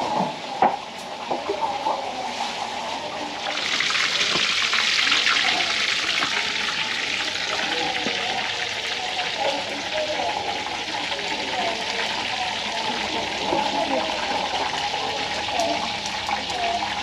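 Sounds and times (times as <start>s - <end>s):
tap water running into sink: 3.5s - 8.8s.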